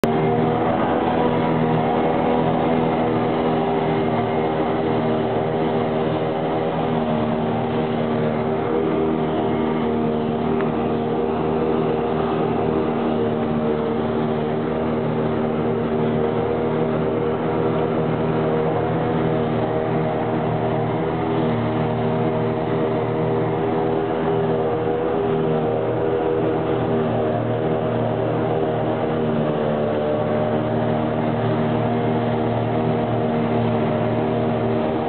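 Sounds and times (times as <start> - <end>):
farm machine engines droning: 0.0 - 35.0.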